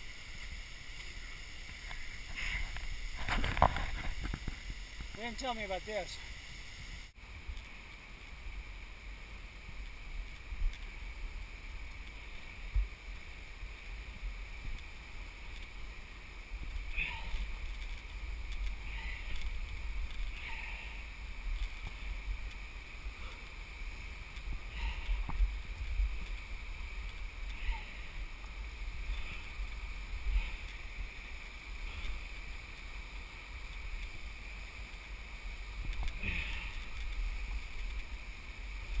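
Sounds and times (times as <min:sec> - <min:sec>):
wind rumble on microphone: 0:00.0 - 0:05.2, 0:08.4 - 0:39.0
rope and gear scraping rock: 0:00.0 - 0:07.1, 0:10.2 - 0:39.0
steady high hum: 0:00.0 - 0:39.0.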